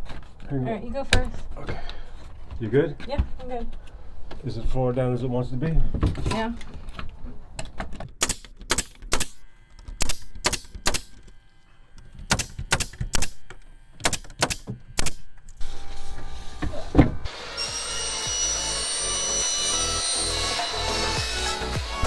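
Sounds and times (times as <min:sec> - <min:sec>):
nail gun firing: 0:08.0 - 0:09.4, 0:10.0 - 0:11.2, 0:12.2 - 0:15.3
background music: 0:17.3 - 0:22.0.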